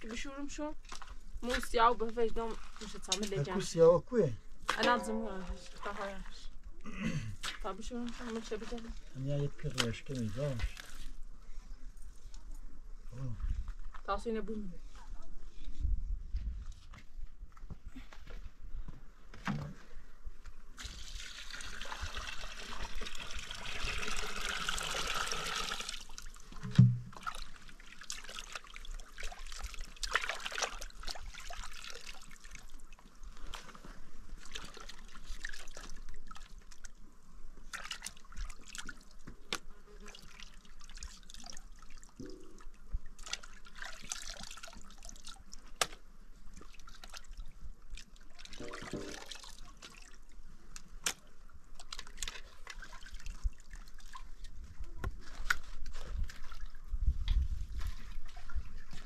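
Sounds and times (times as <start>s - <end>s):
water pouring: 20.8s - 33.7s, 40.1s - 45.4s, 48.3s - 50.1s
thump: 26.6s - 27.2s
water dripping: 40.1s - 45.6s, 48.0s - 50.8s.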